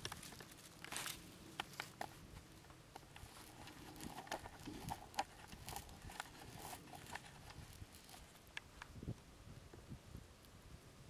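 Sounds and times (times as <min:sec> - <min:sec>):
dry leaves crunching: 0:00.0 - 0:08.5.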